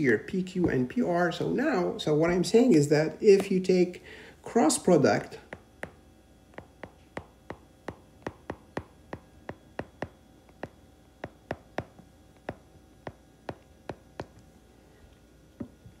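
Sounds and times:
stylus tapping on screen: 0:05.5 - 0:14.4.

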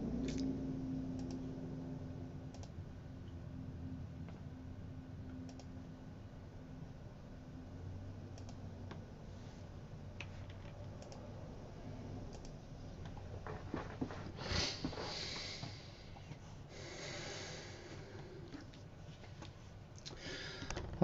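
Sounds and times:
low steady hum: 0:00.0 - 0:21.0
computer keyboard clicks: 0:01.2 - 0:01.4, 0:02.5 - 0:02.8, 0:08.3 - 0:08.6, 0:10.2 - 0:11.2, 0:12.3 - 0:13.2.

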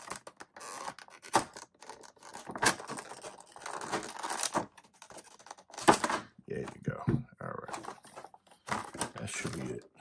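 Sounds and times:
plastic crinkling and scraping: 0:00.0 - 0:10.0.

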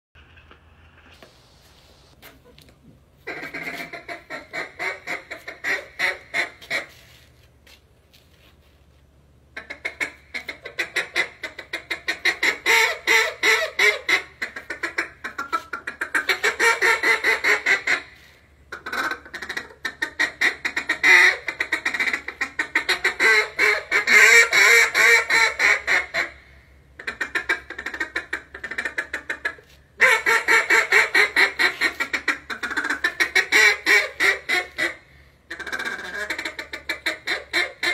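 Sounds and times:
duck call quacking: 0:03.2 - 0:07.2, 0:09.6 - 0:37.9.

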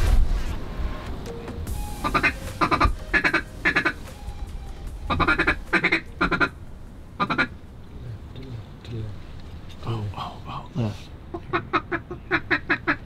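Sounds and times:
duck quacking: 0:02.0 - 0:04.0, 0:05.1 - 0:06.5, 0:07.2 - 0:07.5, 0:11.3 - 0:13.0.

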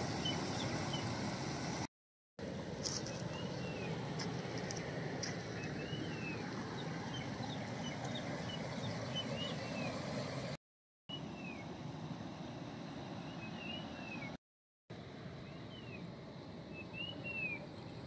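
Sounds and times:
small birds chirping: 0:00.0 - 0:01.2, 0:02.8 - 0:10.0, 0:16.7 - 0:18.0.

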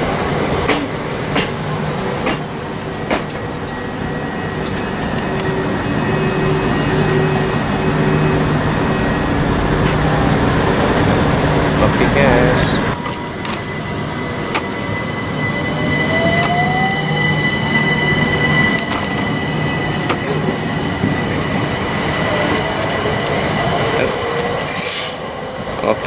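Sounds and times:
wheel and rail rumble: 0:00.0 - 0:26.0
electric train motor whine: 0:01.1 - 0:25.6.

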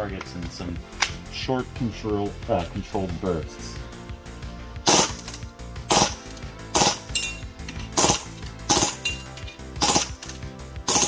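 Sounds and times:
background music: 0:00.0 - 0:11.0
airsoft pistol firing bursts: 0:04.9 - 0:05.3, 0:05.9 - 0:06.2, 0:06.8 - 0:07.1, 0:08.0 - 0:09.1, 0:09.8 - 0:10.2.

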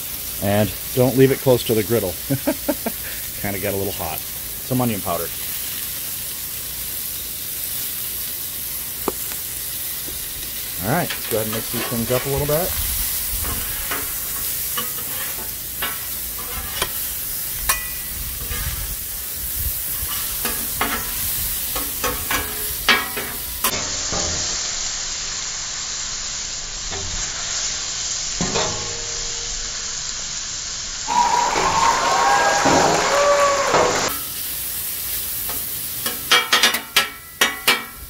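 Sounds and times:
chicken sizzling on a griddle: 0:00.0 - 0:38.0
metal spatulas scraping and clacking: 0:11.0 - 0:12.7, 0:13.4 - 0:17.0, 0:17.6 - 0:18.8, 0:20.0 - 0:21.2, 0:21.8 - 0:24.3, 0:35.5 - 0:38.0
loud wavering tones: 0:31.1 - 0:34.1.

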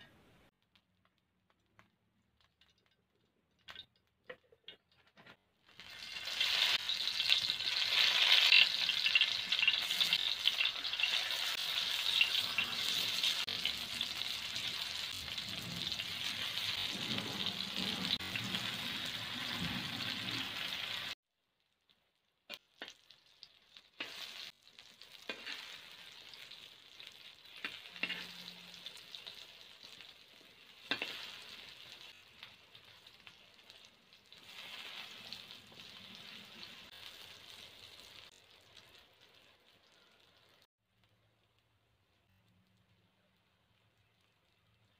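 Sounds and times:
vegetables sizzling in hot oil: 0:05.6 - 0:40.7.

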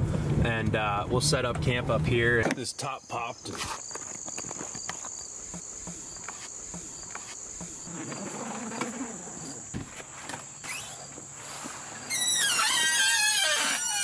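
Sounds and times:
insects trilling: 0:02.2 - 0:14.0
thump: 0:09.7 - 0:10.4.

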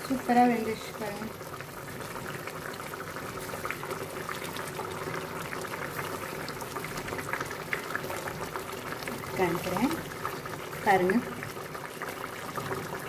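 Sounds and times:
thick gravy bubbling: 0:00.0 - 0:13.0.

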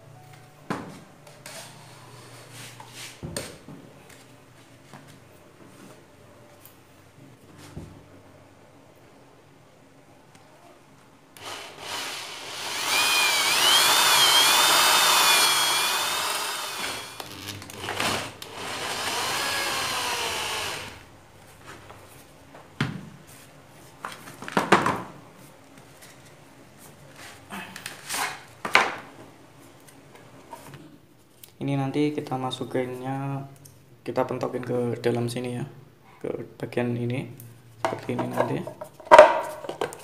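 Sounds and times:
electric drill with hole saw: 0:11.4 - 0:21.0.

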